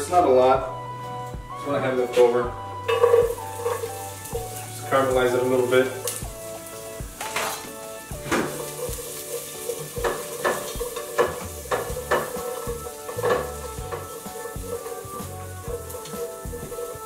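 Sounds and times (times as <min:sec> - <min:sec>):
onion sizzling in oil: 0:02.5 - 0:17.0
spoon scraping pot bottom: 0:02.9 - 0:04.0, 0:08.5 - 0:15.2.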